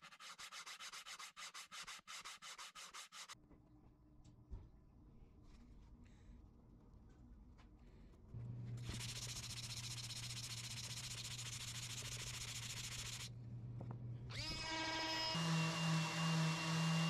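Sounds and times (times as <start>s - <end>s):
orbital sander motor whine: 14.3s - 17.0s.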